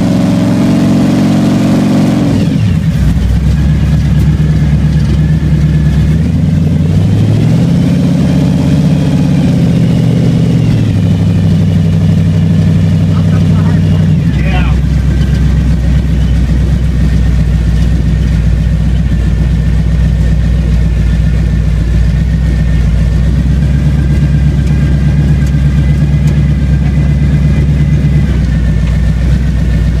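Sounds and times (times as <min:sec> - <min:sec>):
car engine idling: 0:00.0 - 0:30.0.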